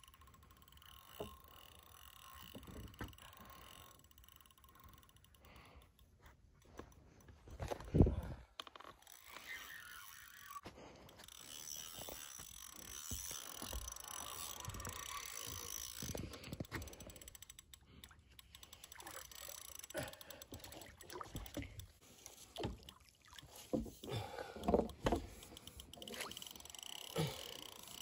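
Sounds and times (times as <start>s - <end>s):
fishing reel clicking: 0.0s - 6.2s, 8.9s - 23.0s, 23.9s - 28.0s
water sloshing and splashing: 20.5s - 26.6s.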